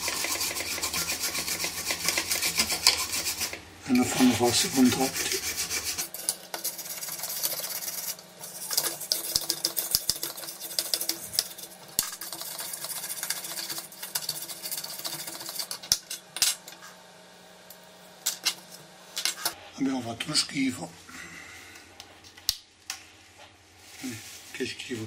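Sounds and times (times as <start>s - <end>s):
toothbrush scrubbing circuit board: 0.0s - 15.9s.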